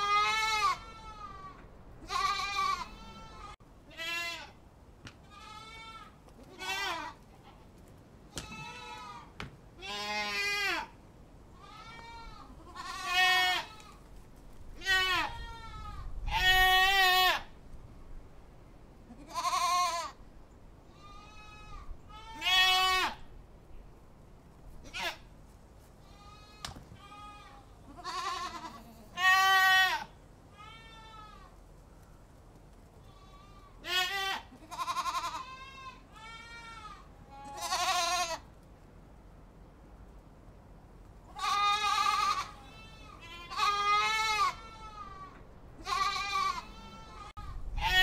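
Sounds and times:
goats bleating: 0:00.0 - 0:04.6, 0:05.2 - 0:07.2, 0:08.3 - 0:10.9, 0:11.6 - 0:14.0, 0:14.8 - 0:17.5, 0:19.1 - 0:20.2, 0:21.0 - 0:23.2, 0:26.0 - 0:31.5, 0:33.0 - 0:38.4, 0:41.3 - 0:48.0.

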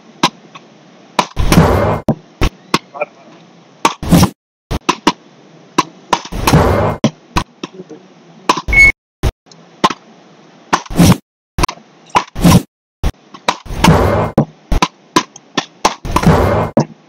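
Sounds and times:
high beep: 0:08.7 - 0:09.0.

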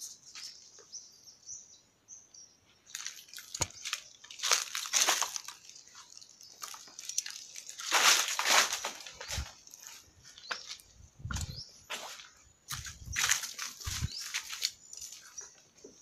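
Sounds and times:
footsteps crunching through leaves: 0:02.9 - 0:15.5.

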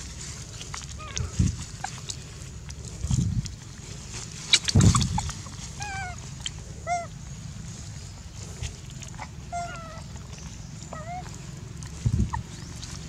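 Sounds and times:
macaques calling: 0:09.2 - 0:10.2.

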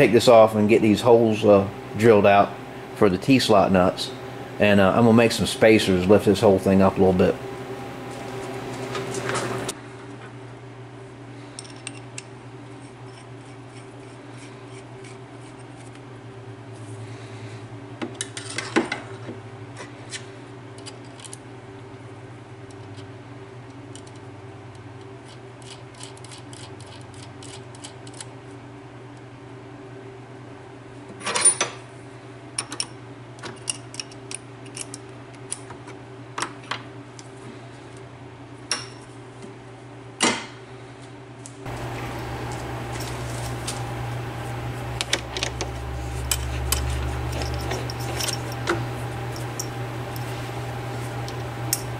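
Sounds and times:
steady low hum: 0:00.0 - 0:17.9, 0:40.6 - 0:51.9.

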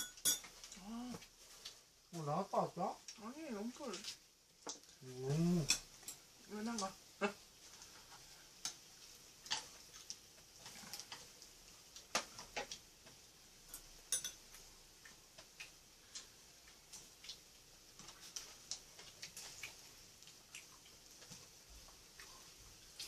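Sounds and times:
leaves and utensils handled: 0:00.0 - 0:01.8.

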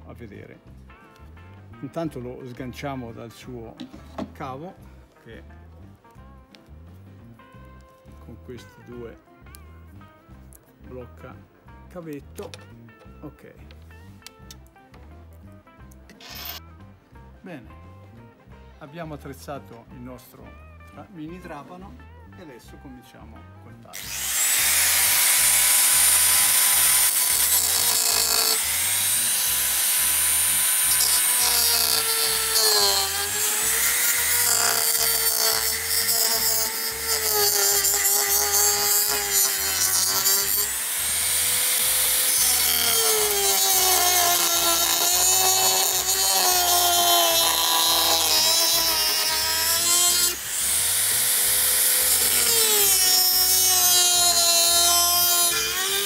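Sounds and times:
rotary drill motor whine: 0:16.2 - 0:16.6, 0:24.0 - 0:56.0.

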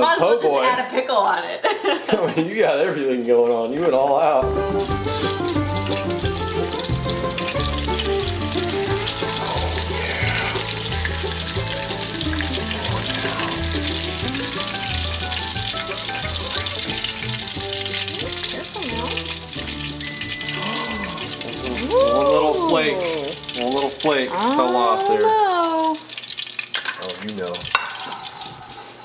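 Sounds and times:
fish frying in hot oil: 0:02.9 - 0:29.0
background music with bass line: 0:04.4 - 0:23.4.

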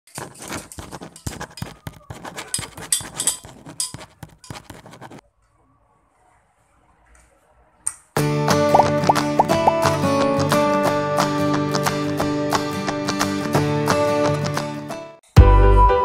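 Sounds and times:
kitchen utensils scraping and clinking: 0:00.1 - 0:05.2
background music: 0:08.2 - 0:16.0.

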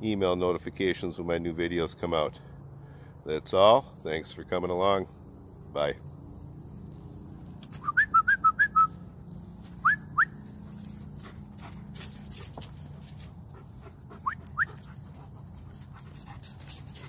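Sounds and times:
footsteps crunching dry leaves: 0:05.4 - 0:08.1, 0:08.9 - 0:13.8
person whistling: 0:07.8 - 0:09.0.

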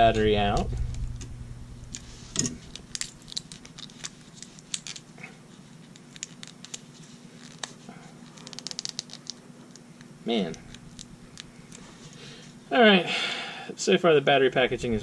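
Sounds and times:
plastic packaging clicks and crackles: 0:02.6 - 0:11.8.

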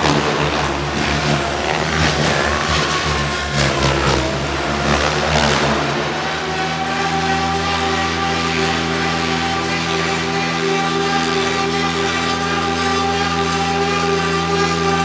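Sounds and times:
rc helicopter rotor whining: 0:00.0 - 0:15.0
rotor blades swooshing: 0:00.0 - 0:15.0.

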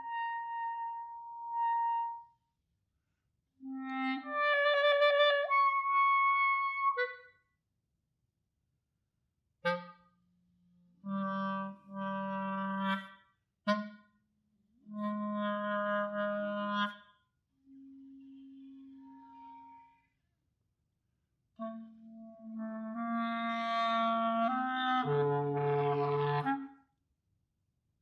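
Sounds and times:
clarinet fluttering trill: 0:03.6 - 0:07.2, 0:17.7 - 0:20.0.

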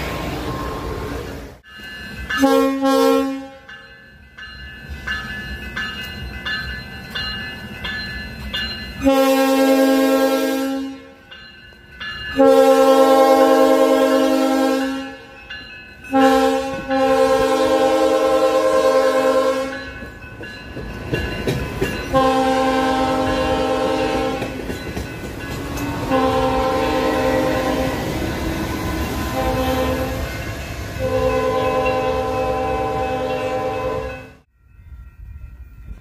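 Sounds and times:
train cars rumbling over rails: 0:00.0 - 0:36.0
train horn blasts: 0:02.4 - 0:03.7, 0:09.0 - 0:11.2, 0:12.4 - 0:15.4, 0:16.1 - 0:19.9, 0:22.1 - 0:24.6, 0:26.0 - 0:30.3, 0:31.0 - 0:34.5.

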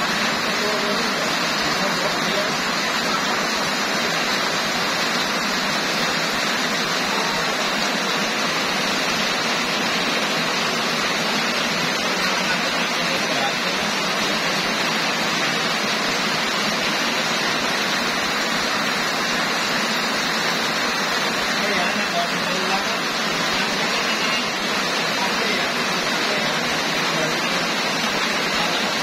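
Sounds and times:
heavy rain pouring: 0:00.0 - 0:29.0.

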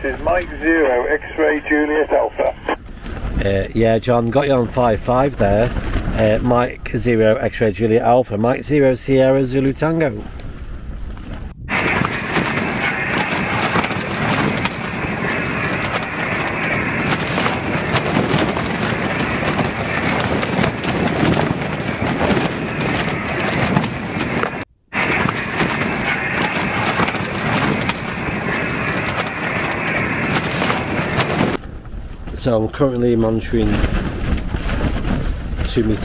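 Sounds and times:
radio static hiss: 0:00.0 - 0:02.8.

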